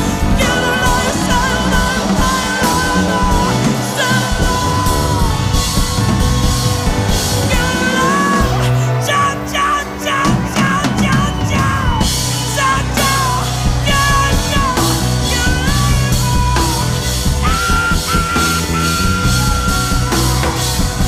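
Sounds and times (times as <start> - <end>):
drum hits: 0.0 - 8.8
electric guitar: 0.0 - 21.0
keyboard: 0.0 - 21.0
live rock band: 0.0 - 21.0
woman singing: 0.0 - 21.0.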